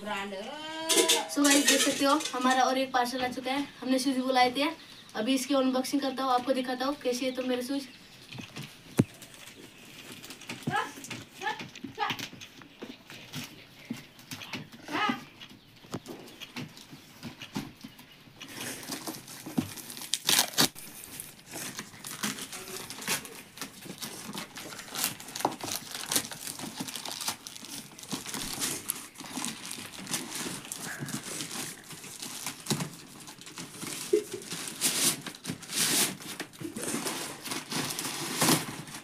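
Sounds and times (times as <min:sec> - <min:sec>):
plastic bag tearing and crinkling: 0:18.5 - 0:39.0.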